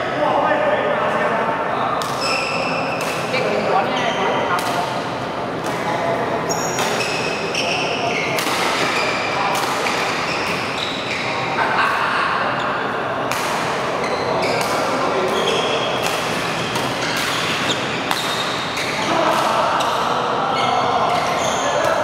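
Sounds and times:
rackets hitting shuttlecock: 2.0 - 3.6, 4.5 - 5.0, 13.3 - 13.8, 14.4 - 20.0
shoes squeaking on court: 6.4 - 11.4, 14.0 - 19.0.

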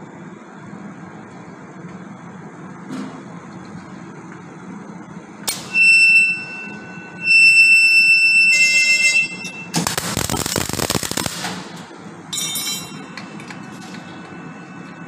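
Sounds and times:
short beep: 5.7 - 9.7
high-pitched electronic buzzer: 5.7 - 11.2
welding arc crackle: 9.2 - 12.1.

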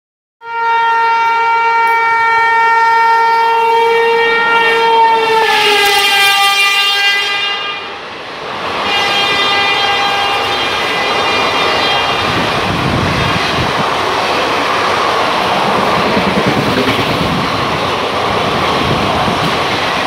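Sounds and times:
train horn blast: 0.4 - 8.0, 8.8 - 12.7
rush of passing train coaches: 1.0 - 20.0.

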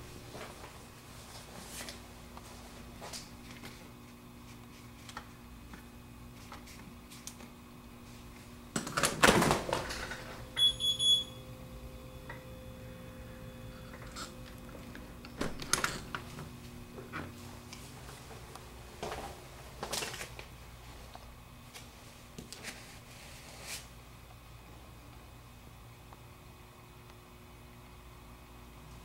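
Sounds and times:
high electronic beeps: 10.6 - 11.4.

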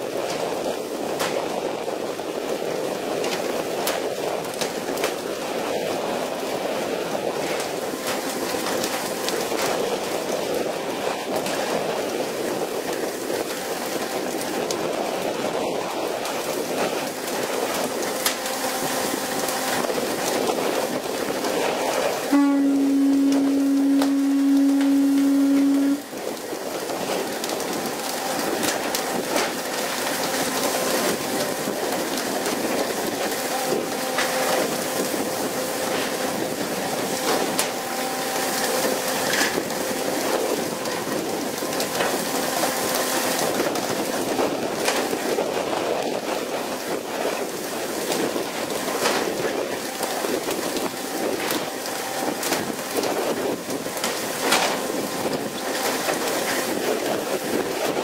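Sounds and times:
loud horn-like tone: 17.7 - 43.7, 49.8 - 56.8.

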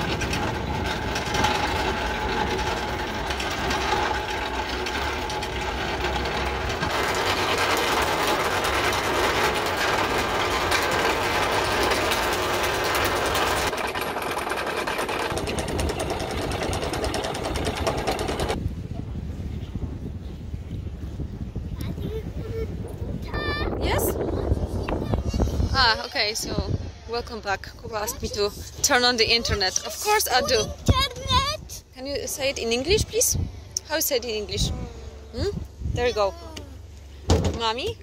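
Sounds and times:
anchor chain clattering: 0.0 - 18.6.

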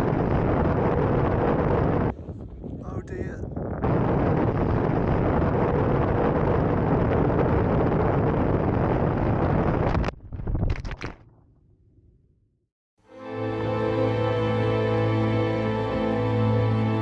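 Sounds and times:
wind noise on microphone: 0.0 - 11.2.

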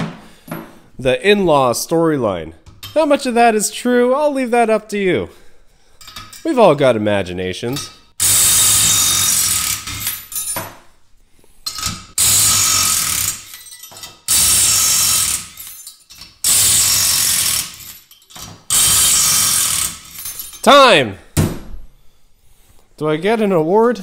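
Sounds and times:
impact wrench hammering: 7.8 - 10.7, 11.7 - 15.8, 16.4 - 18.0, 18.7 - 20.6.

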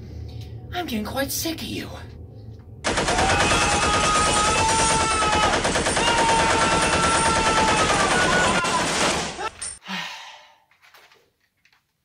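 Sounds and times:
rapid automatic gunfire: 2.9 - 9.5.

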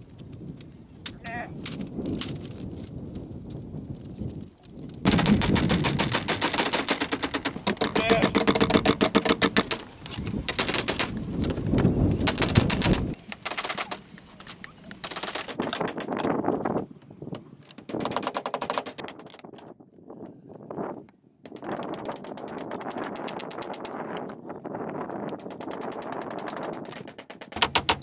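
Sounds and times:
tool knocking on bamboo: 7.6 - 9.8.

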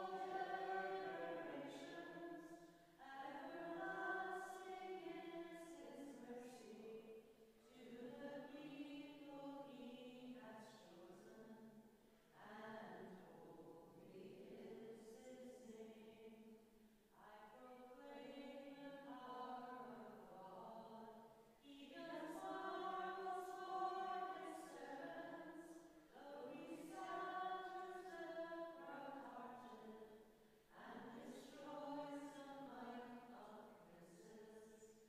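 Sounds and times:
congregation singing a hymn: 0.0 - 2.6, 21.9 - 25.6.

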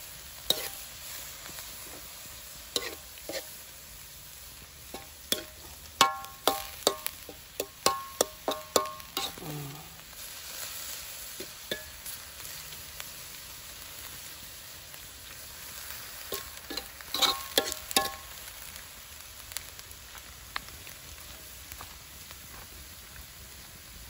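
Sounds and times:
meat sizzling in a wok: 0.0 - 24.0
metal spoon scraping a wok: 0.5 - 3.6, 4.9 - 9.9, 10.5 - 12.2, 16.3 - 18.2.

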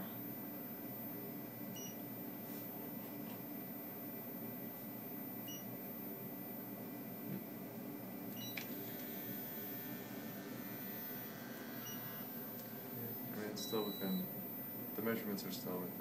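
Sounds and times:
scanner humming: 0.0 - 16.0
short electronic beeps: 10.9 - 12.4, 13.0 - 15.0.

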